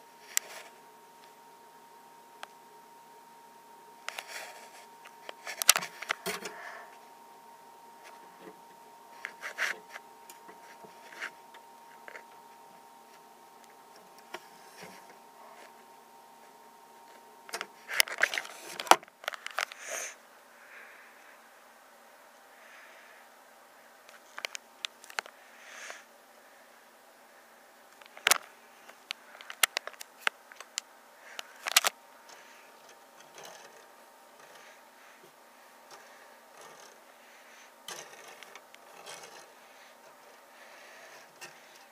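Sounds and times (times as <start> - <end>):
faint room hiss: 0.0 - 41.9.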